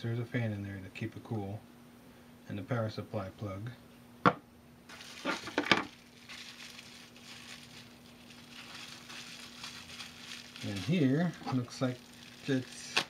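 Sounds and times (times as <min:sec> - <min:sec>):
faint steady hum: 0:00.0 - 0:13.0
plastic packaging crinkling: 0:04.9 - 0:13.0.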